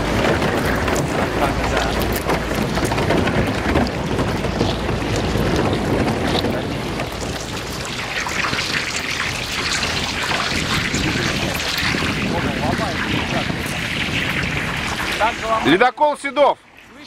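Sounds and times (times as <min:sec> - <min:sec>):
ice cracking and crunching: 0:00.0 - 0:15.7.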